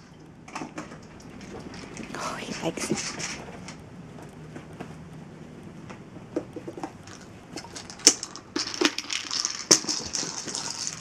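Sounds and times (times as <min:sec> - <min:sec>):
kibble rattling in plastic ball: 0:00.0 - 0:03.8, 0:06.6 - 0:11.0.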